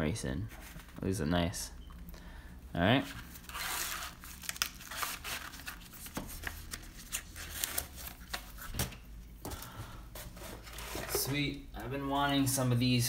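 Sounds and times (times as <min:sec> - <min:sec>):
packaging rustling: 0:03.1 - 0:11.5.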